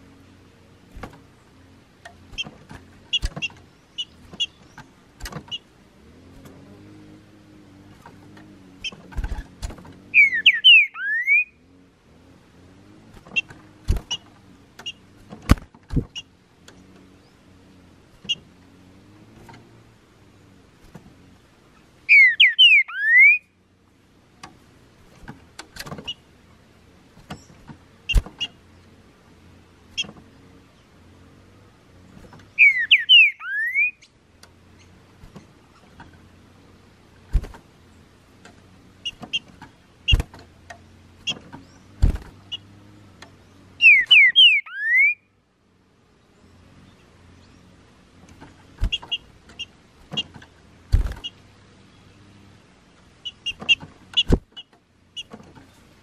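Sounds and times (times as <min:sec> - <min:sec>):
bird whistled song: 0:10.1 - 0:11.6, 0:22.1 - 0:23.5, 0:32.5 - 0:34.2, 0:43.7 - 0:45.3.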